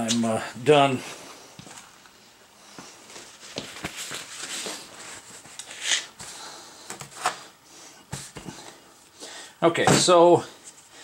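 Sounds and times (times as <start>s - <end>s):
paper towel rustling: 3.1s - 6.5s.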